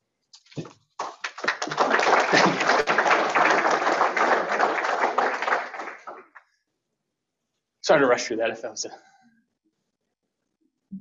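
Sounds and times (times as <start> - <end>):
audience applauding: 1.0 - 6.4.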